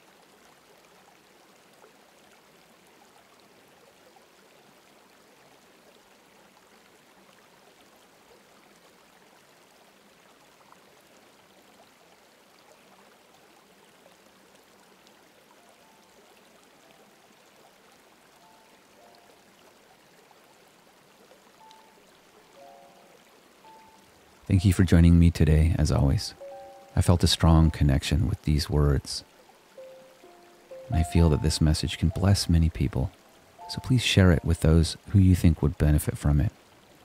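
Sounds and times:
stream water flowing: 0.0 - 37.0
soft sustained tones: 21.6 - 28.9, 29.7 - 34.8.

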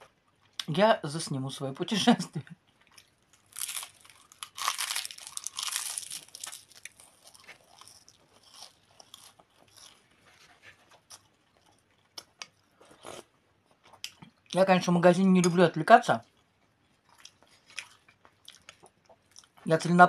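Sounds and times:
crunching toasted bread: 2.7 - 14.1, 16.2 - 19.6.

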